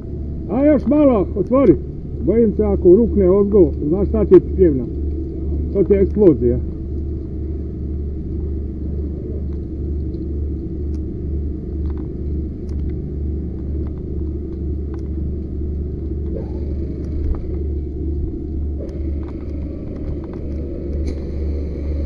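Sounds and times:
low engine rumble: 0.0s - 22.0s
faint clicks and knocks: 11.8s - 17.7s.

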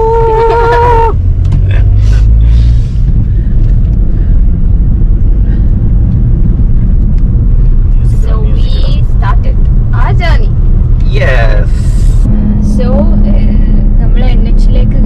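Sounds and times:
car cabin road and engine rumble: 0.0s - 15.0s
high horn tone: 12.3s - 14.7s.

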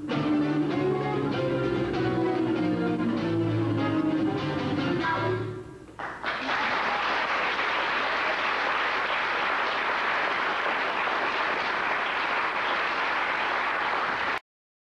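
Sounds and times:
audience applauding: 6.0s - 14.4s.

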